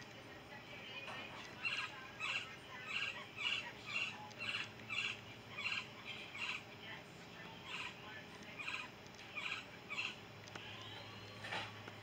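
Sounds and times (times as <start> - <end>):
woodpecker trilled calls: 1.4 - 6.7, 7.6 - 10.2.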